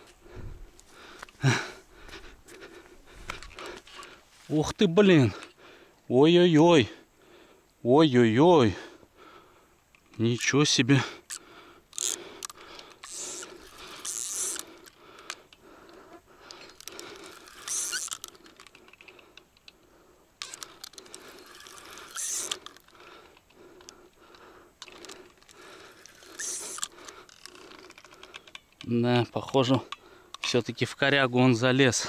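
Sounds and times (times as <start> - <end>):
fishing reel clicking: 11.2 - 15.6, 16.4 - 19.8, 20.4 - 24.2, 24.8 - 28.9
short hissing bursts: 25.9 - 26.9.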